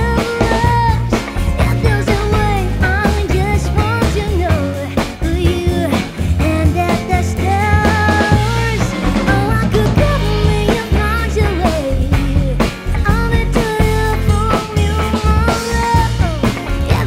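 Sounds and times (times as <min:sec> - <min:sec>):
bending lead melody: 0:00.0 - 0:17.0
double bass walking line: 0:00.0 - 0:17.0
drum kit with cymbals: 0:00.0 - 0:17.0.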